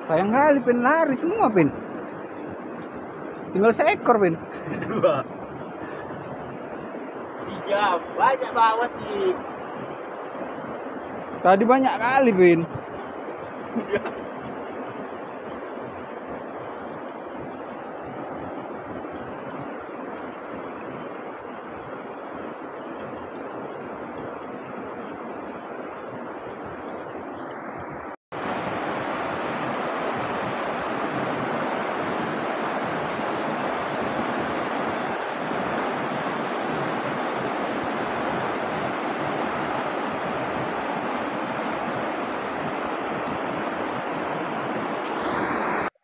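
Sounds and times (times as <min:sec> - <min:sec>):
river rapids rushing over boulders: 0:27.3 - 0:46.0.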